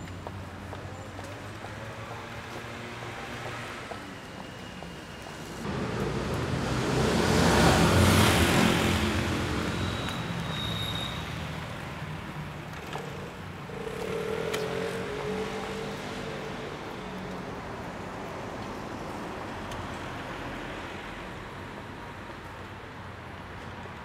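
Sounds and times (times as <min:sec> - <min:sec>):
vehicle engine hum: 0:05.5 - 0:10.3
vehicle passing close: 0:05.6 - 0:10.2.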